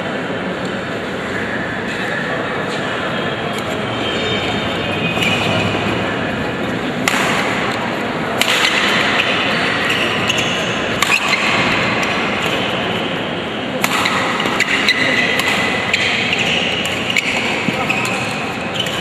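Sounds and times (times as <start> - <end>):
murmur of spectators: 0.0 - 19.0
racket hitting shuttlecock: 6.9 - 13.2, 13.8 - 19.0.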